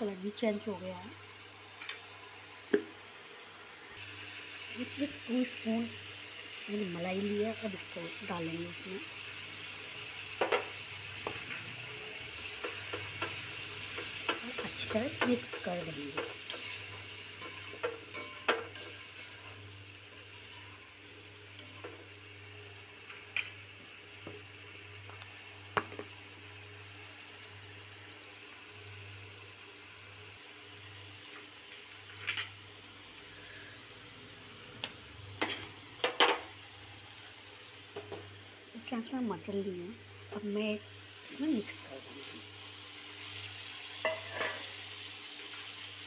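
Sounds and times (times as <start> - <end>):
gravy sizzling: 0.0 - 46.0
spoon scraping metal pan: 14.4 - 19.6, 20.2 - 20.9, 44.0 - 44.7.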